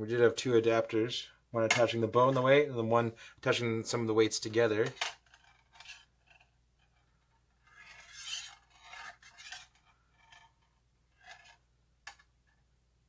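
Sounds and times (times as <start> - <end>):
metal weights scraping on metal: 7.6 - 10.5.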